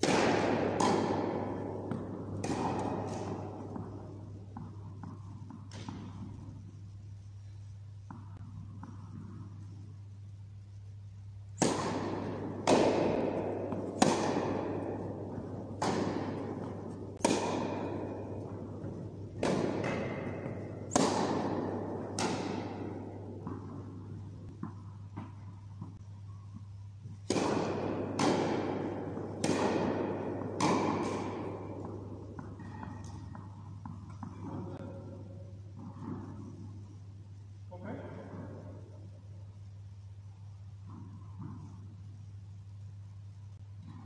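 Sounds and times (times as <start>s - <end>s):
tennis ball hits echoing: 0.0s - 6.7s, 11.6s - 26.0s, 27.1s - 36.8s
low electrical hum: 0.0s - 44.0s.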